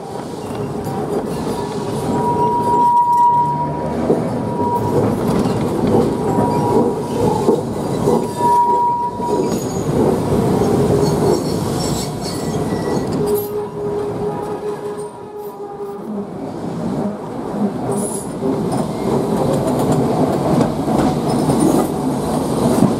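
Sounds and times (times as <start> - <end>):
tram wheels rattling on rails: 0.0 - 22.9
high wheel squeal: 1.4 - 5.6, 6.2 - 9.9, 11.0 - 13.8.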